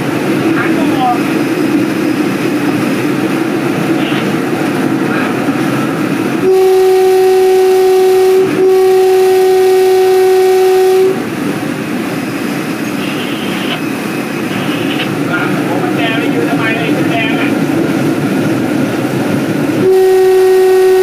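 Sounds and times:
train running on rails: 0.0s - 21.0s
train horn blasts: 6.4s - 11.3s, 19.8s - 21.0s.

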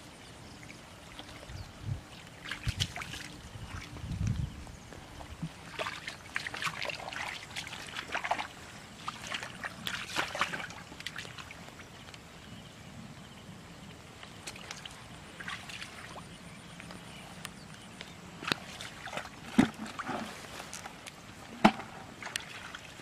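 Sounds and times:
splashing in muddy water: 0.7s - 4.2s, 5.2s - 12.0s, 14.3s - 17.1s, 18.4s - 23.0s.

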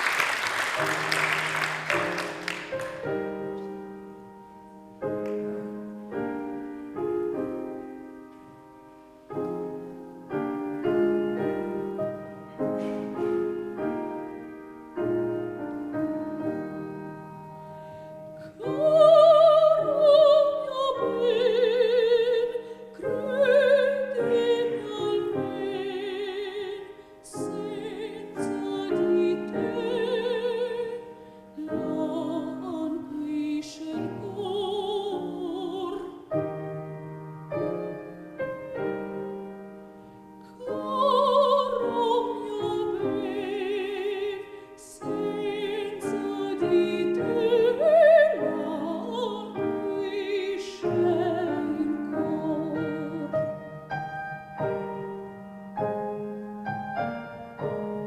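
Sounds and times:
piano chords: 0.0s - 58.0s
woman singing operatically: 18.4s - 36.3s, 40.5s - 53.5s.

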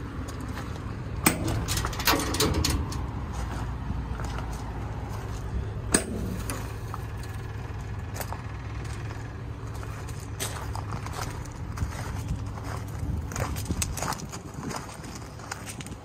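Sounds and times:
low rumble: 0.0s - 15.4s
metal door latch snapping open: 1.2s - 3.1s.

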